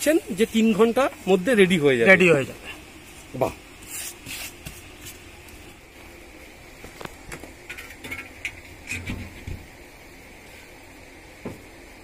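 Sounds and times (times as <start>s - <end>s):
high-pitched background hum: 0.0s - 12.0s.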